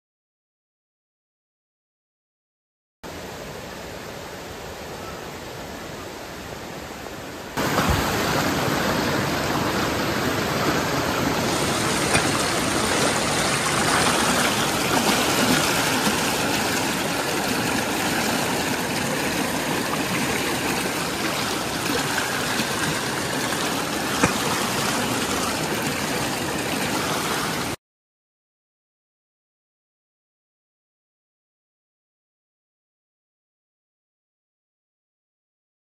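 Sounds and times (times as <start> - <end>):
stream water pouring over rock: 7.6 - 27.8.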